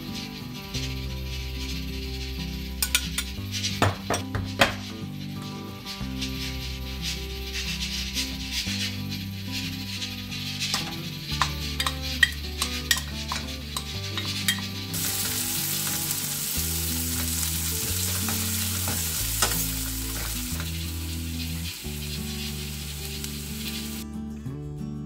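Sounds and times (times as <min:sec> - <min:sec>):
food sizzling in a pan: 0:00.0 - 0:03.3, 0:10.4 - 0:24.0
background music: 0:00.0 - 0:25.0
spatula clicks and scrapes: 0:10.6 - 0:24.0.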